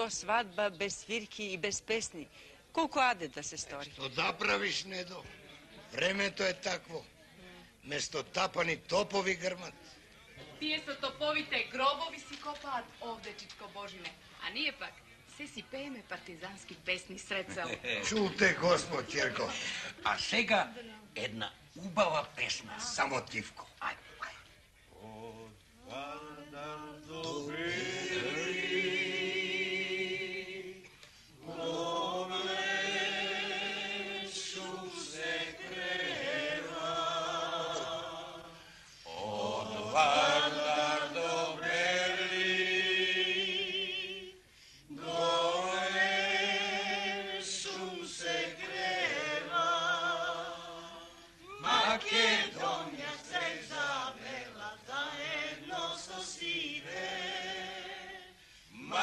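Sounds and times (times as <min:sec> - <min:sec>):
voices singing folk song: 0:24.9 - 0:59.0.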